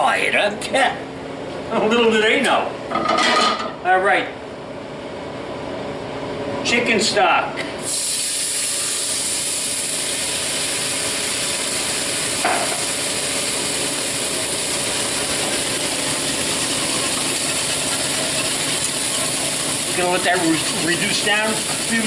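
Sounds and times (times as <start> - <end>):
stock sizzling in frying pan: 7.8 - 22.0.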